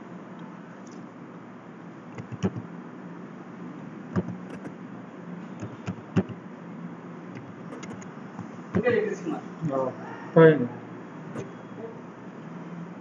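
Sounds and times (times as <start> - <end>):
steady low hum: 0.0 - 13.0
keyboard keys clicking: 2.2 - 2.6, 4.2 - 4.7, 5.6 - 6.4, 7.4 - 8.9.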